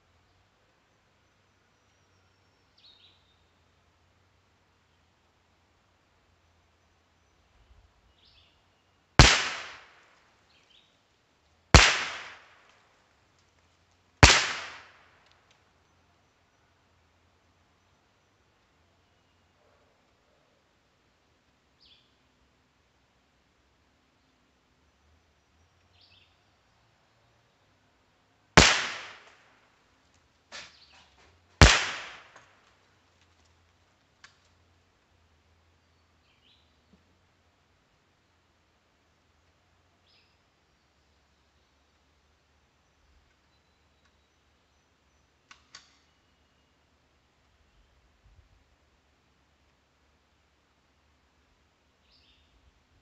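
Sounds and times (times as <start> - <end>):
rifle shots: 9.2 - 10.0, 11.7 - 12.6, 14.2 - 15.1, 28.6 - 29.4, 31.6 - 32.6.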